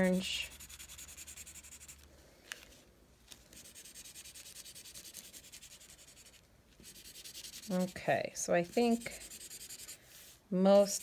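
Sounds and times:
marker scribbling on paper: 0.0 - 2.0, 3.6 - 10.0.

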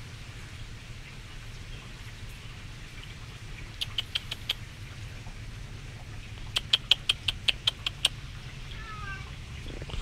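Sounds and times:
lip kissing squeaks: 3.8 - 4.6, 6.6 - 8.2.

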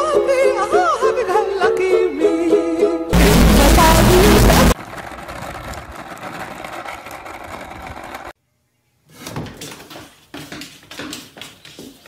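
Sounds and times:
skateboard wheels rolling on asphalt: 3.8 - 8.4.

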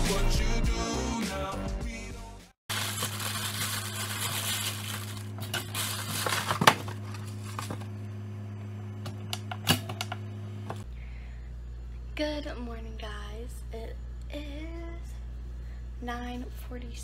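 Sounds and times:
plastic bag crinkling: 2.7 - 7.7
steady low hum: 2.8 - 17.0.

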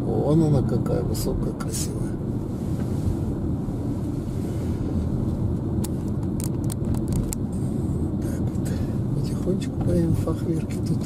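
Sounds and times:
car engine and tyre rumble: 0.0 - 11.0.

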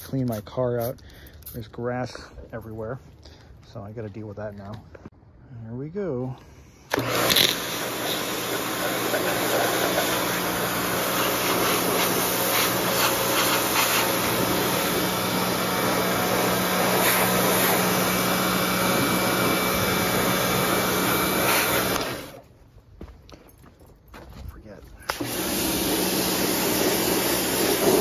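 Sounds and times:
pressure washer jet hissing on metal: 6.9 - 22.4, 25.1 - 28.0
pressure washer motor humming: 6.9 - 22.4, 25.1 - 28.0.

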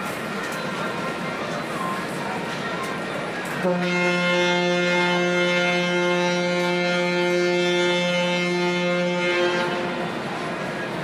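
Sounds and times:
ship's horn blast: 3.6 - 10.3.

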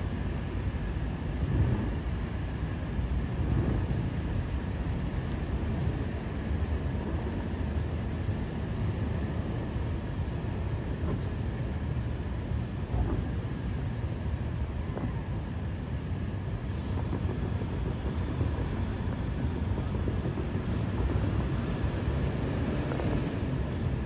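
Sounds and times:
distant fireworks rumble: 16.5 - 24.0.

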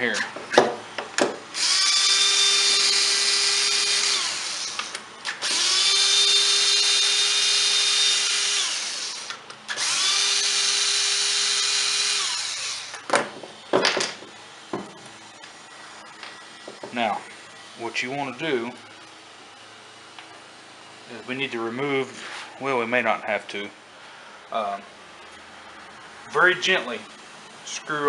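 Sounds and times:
cordless drill whining: 1.5 - 13.1.

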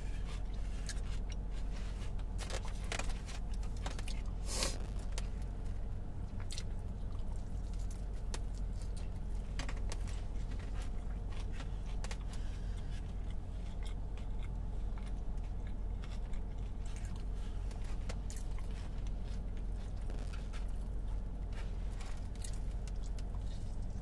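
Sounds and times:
steady low hum: 0.0 - 24.0
person chewing: 0.3 - 5.3, 10.0 - 24.0
food handling clicks and crackles: 0.3 - 5.6, 6.3 - 24.0.

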